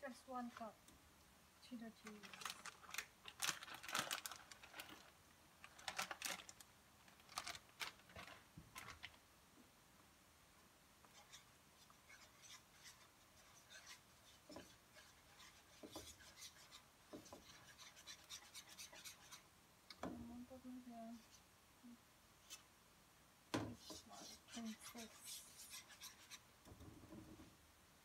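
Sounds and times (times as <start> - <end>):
plastic bag crackling: 2.1 - 9.2
whisk scraping in a pan: 11.1 - 19.5, 23.7 - 26.5.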